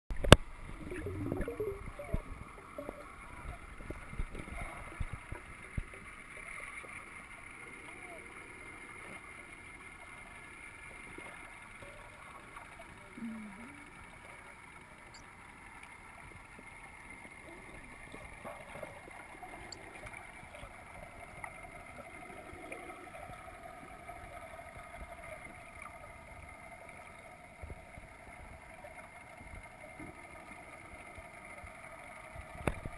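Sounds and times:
underwater drone: 0.1s - 32.9s
faint clicks and knocks: 24.8s - 32.9s.

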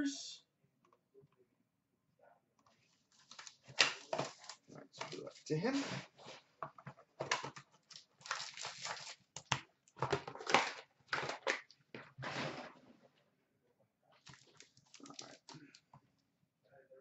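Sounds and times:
faint handling sounds: 2.6s - 9.2s
cardboard rustling and tearing: 3.1s - 6.5s, 7.2s - 12.9s.

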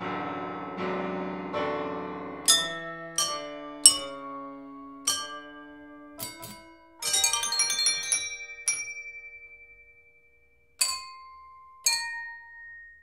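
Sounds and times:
wine glasses struck by hammers: 2.5s - 4.3s, 5.1s - 9.8s, 10.8s - 13.0s.

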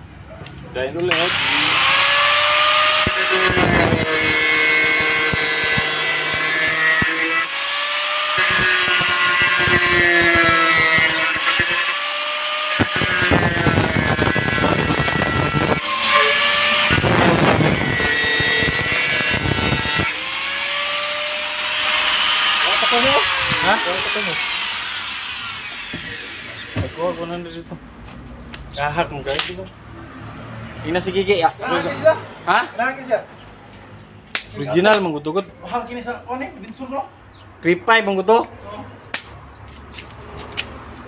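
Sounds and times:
angle grinder motor whine: 1.1s - 27.4s
harsh grinding on metal: 1.1s - 27.6s.

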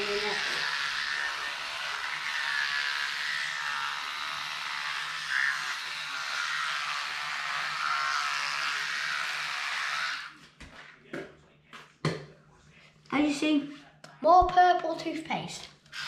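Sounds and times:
toothbrush scrubbing teeth: 0.0s - 10.3s.

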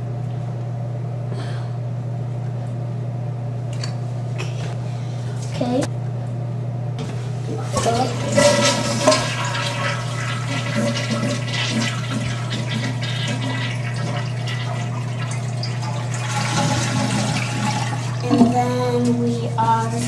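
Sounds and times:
toilet flushing: 7.0s - 19.8s.

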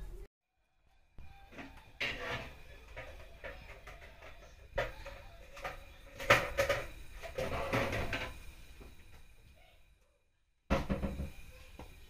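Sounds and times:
oven door and rack clattering: 1.6s - 8.4s.

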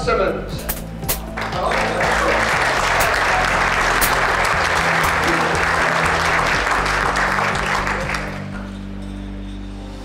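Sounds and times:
background music: 0.0s - 10.0s
audience applauding: 1.2s - 8.7s.

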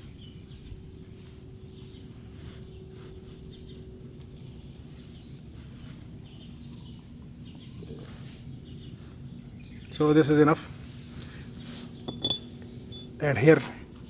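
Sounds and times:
faint constant hum: 0.0s - 14.0s
small birds chirping: 0.0s - 14.0s
hands working grease: 11.8s - 13.2s.

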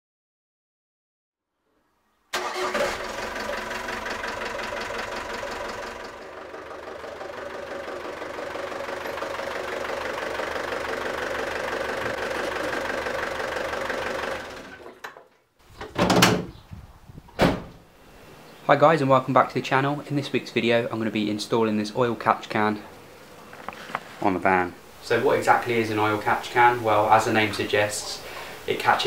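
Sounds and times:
diesel engine idling with knock: 2.9s - 14.9s
loud thuds: 17.3s - 17.8s.

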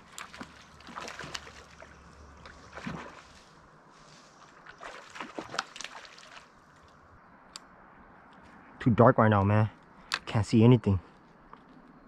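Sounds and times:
small splashes: 0.0s - 3.6s, 4.4s - 7.0s
faint water sloshing: 0.0s - 7.1s
rustles: 0.0s - 7.1s.

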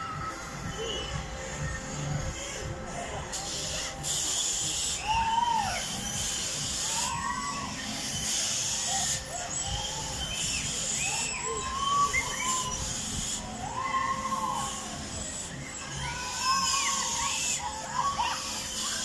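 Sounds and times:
animal cries rising and falling: 6.8s - 15.1s, 15.8s - 19.0s.

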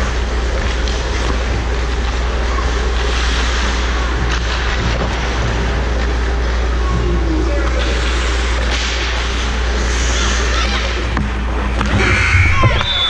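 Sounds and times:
skates scraping ice: 0.0s - 5.9s.

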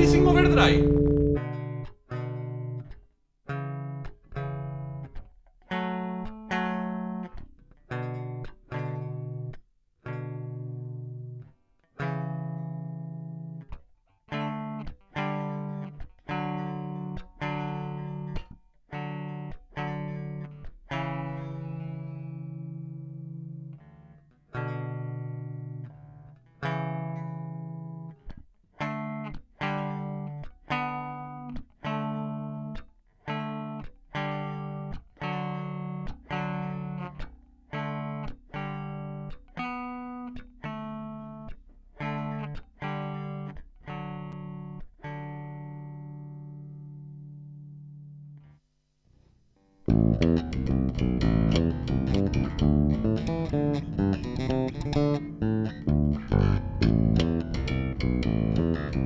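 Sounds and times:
electric bass plucked notes: 0.0s - 1.6s, 49.8s - 59.0s.

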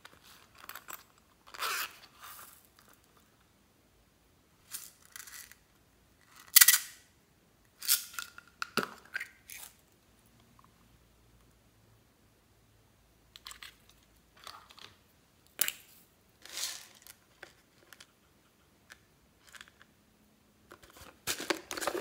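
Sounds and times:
plastic toys rustling and scraping: 0.0s - 3.2s, 13.5s - 15.0s, 16.4s - 18.3s, 20.7s - 22.0s.

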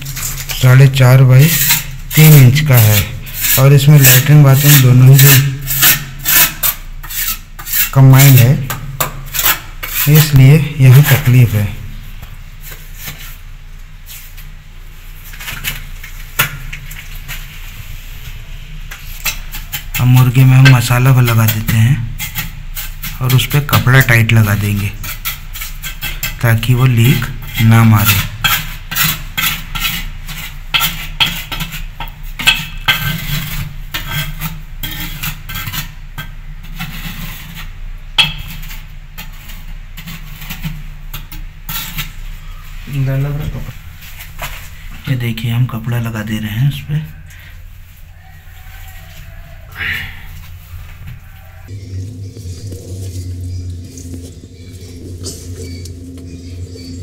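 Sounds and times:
mortar scraping on bricks: 0.0s - 11.3s, 18.9s - 42.5s
steady low hum: 37.3s - 57.0s.

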